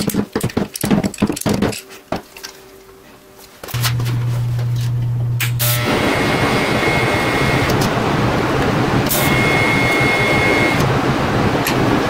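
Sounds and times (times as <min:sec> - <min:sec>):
thin high whine: 0:03.7 - 0:11.0
welding arc crackling: 0:03.7 - 0:12.0.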